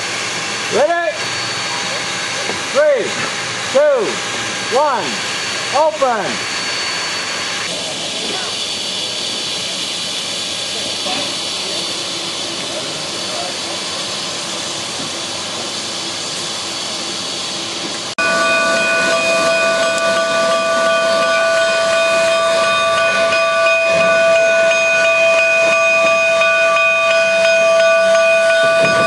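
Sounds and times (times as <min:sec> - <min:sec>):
steam locomotive venting steam: 0:00.0 - 0:29.0
chord of whistling tones: 0:18.2 - 0:29.0.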